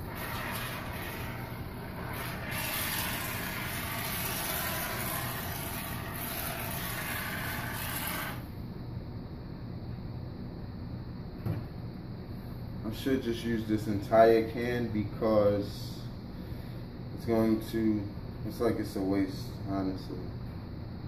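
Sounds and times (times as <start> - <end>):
aerosol spray foam hissing: 0.0 - 8.5.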